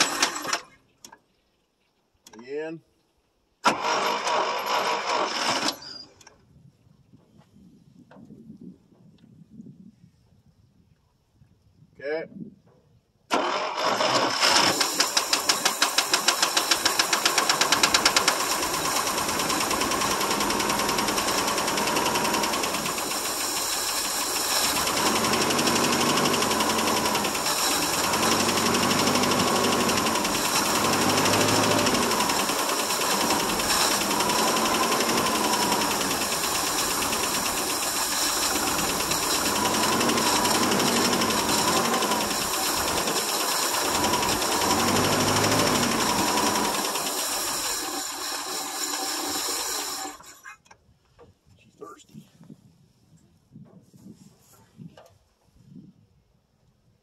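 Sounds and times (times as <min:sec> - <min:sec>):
engine starting and revving: 0:00.0 - 0:00.7, 0:03.6 - 0:06.2, 0:13.3 - 0:50.5.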